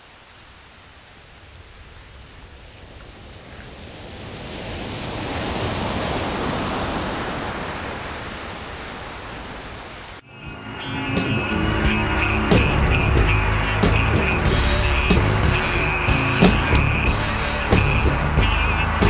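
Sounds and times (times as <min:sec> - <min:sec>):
rushing noise: 0:10.1 - 0:19.0
music: 0:10.3 - 0:19.0.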